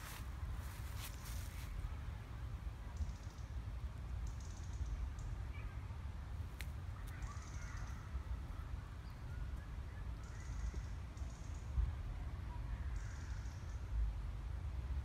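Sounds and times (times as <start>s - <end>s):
faint bird chirps: 2.9s - 3.6s, 4.2s - 6.0s, 6.9s - 11.9s, 12.5s - 14.0s.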